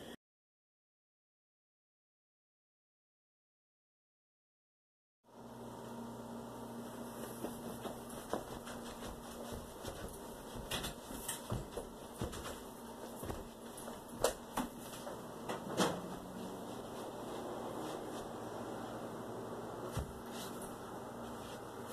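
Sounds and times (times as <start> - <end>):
low hum: 5.3 - 21.9.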